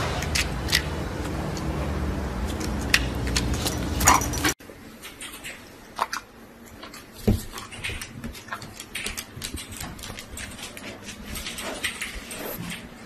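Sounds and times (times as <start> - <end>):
loud outdoor sound: 0.0 - 13.0
dogs scuffling on tile floor: 7.1 - 12.8.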